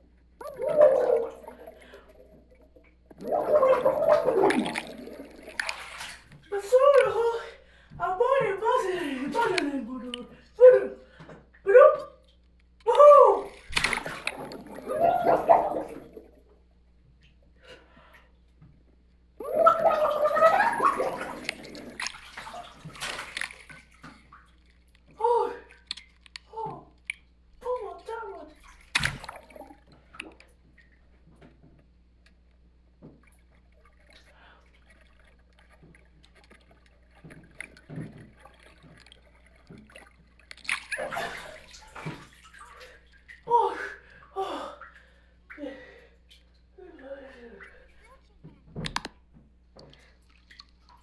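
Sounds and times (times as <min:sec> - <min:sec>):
muffled underwater movement: 0:00.0 - 0:07.9, 0:13.3 - 0:16.7, 0:19.4 - 0:25.2, 0:28.6 - 0:43.1
water splashing and sloshing: 0:00.0 - 0:51.0
gurgled vocal sound underwater: 0:00.4 - 0:07.5, 0:12.9 - 0:16.5, 0:19.4 - 0:23.5, 0:29.2 - 0:29.9.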